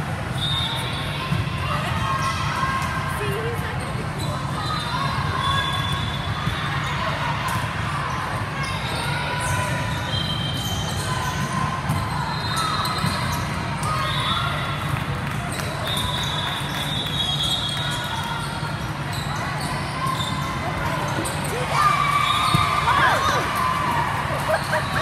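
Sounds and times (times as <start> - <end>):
chatter of people: 0.0 - 25.0
sneaker squeaks on court floor: 8.6 - 14.5, 15.5 - 23.4.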